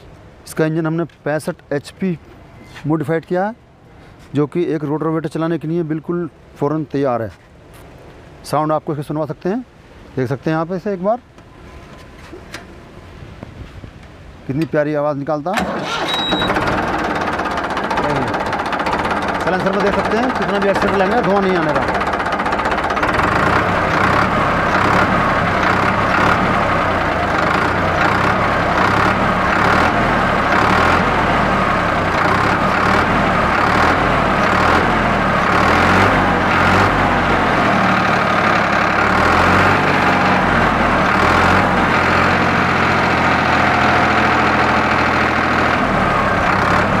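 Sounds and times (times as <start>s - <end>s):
tractor diesel engine running: 15.6s - 47.0s.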